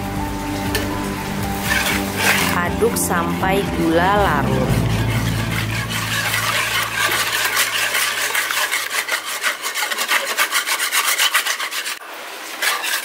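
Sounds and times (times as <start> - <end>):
whisk scraping a plastic bowl: 1.7 - 2.6, 4.8 - 12.0, 12.6 - 13.0.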